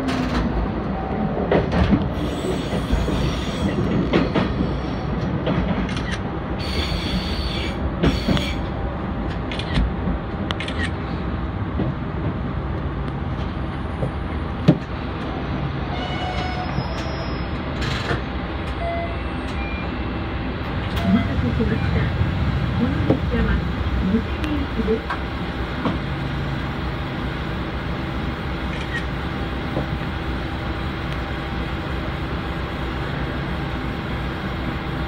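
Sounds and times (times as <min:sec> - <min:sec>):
diesel railcar running slowly: 0:00.0 - 0:35.0
train wheels clicking and squealing: 0:01.5 - 0:08.7, 0:15.9 - 0:20.2.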